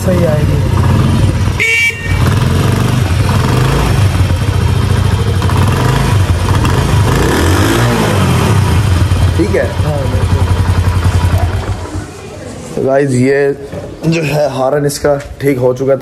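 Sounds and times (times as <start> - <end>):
small motorcycle engine revving: 0.2 - 12.3.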